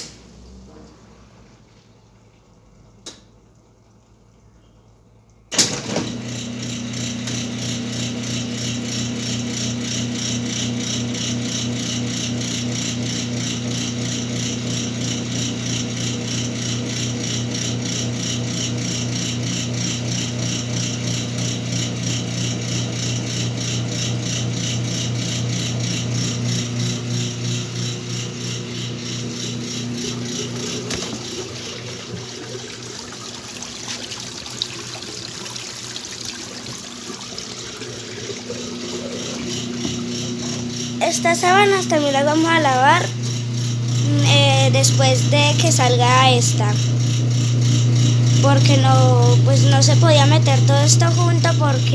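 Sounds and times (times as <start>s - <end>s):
washing machine drain pump humming: 0.0s - 51.9s.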